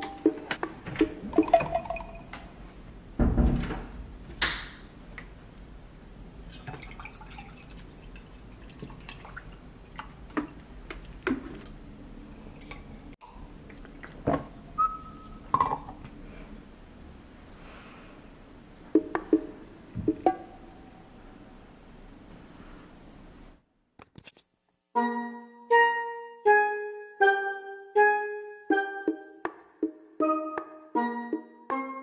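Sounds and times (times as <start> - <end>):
water trickling into glass mug: 1.4 - 2.2, 6.4 - 10.1
bottle and glass clinking: 1.4 - 2.3.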